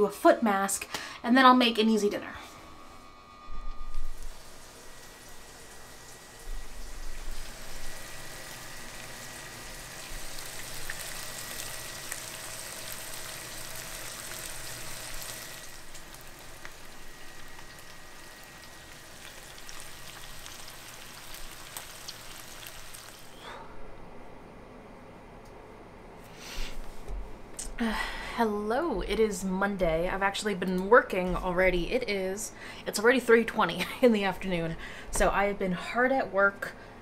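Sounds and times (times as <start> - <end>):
meat sizzling in a pan: 4.1 - 23.3.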